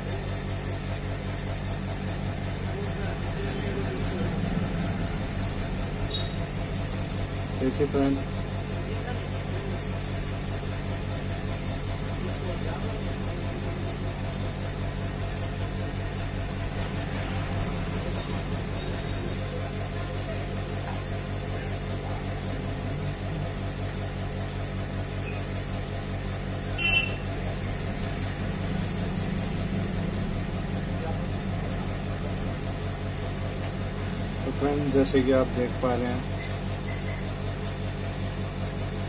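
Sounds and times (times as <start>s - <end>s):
low machine hum: 0.0s - 39.0s.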